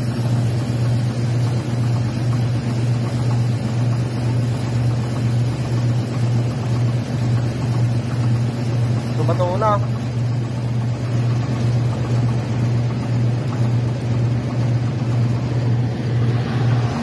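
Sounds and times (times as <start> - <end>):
rice mill droning: 0.0 - 17.0.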